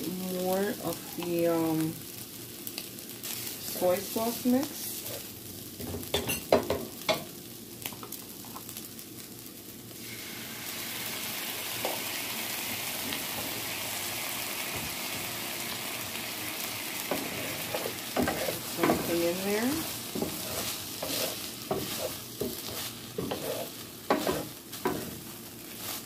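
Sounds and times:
sauce sizzling in hot pan: 0.0s - 26.0s
spatula scraping skillet: 17.0s - 26.0s.

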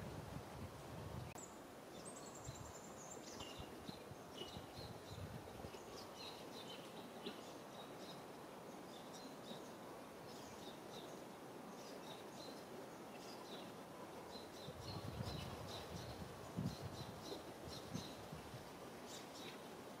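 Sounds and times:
small birds chirping: 1.4s - 18.4s, 19.0s - 19.7s.

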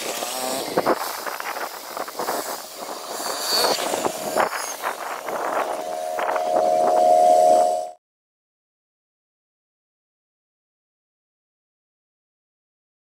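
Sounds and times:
sped-up train sounds: 0.6s - 8.0s.

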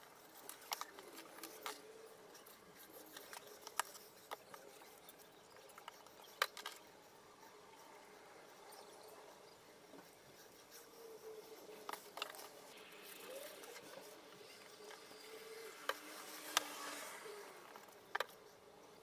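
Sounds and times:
wood rubbing and scraping: 9.3s - 19.0s.

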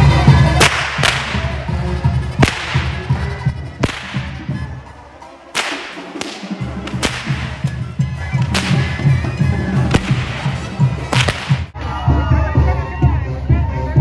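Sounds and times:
music: 0.0s - 14.0s
voices: 0.0s - 14.0s
whip cracking: 0.5s - 1.7s, 2.3s - 3.2s, 3.8s - 4.6s, 5.5s - 11.8s.

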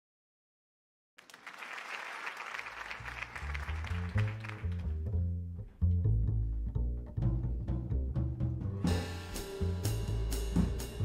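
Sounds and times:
audience applause: 1.2s - 5.0s
double bass plucking: 3.4s - 11.0s.

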